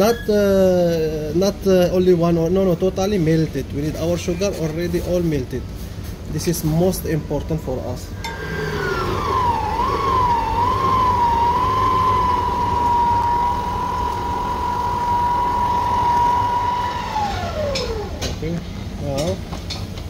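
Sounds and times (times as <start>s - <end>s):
stand mixer motor whining: 8.2s - 18.4s.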